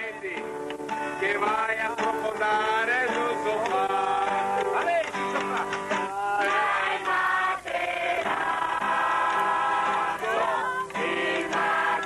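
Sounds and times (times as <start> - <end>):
acoustic guitar: 0.0 - 12.0
group singing in chorus: 1.1 - 4.7, 6.1 - 12.0.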